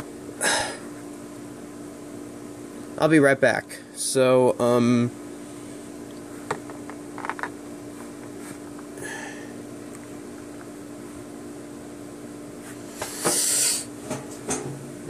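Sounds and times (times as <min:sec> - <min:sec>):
steady low hum: 0:00.0 - 0:15.0
plastic clicks and knocks: 0:06.6 - 0:07.5.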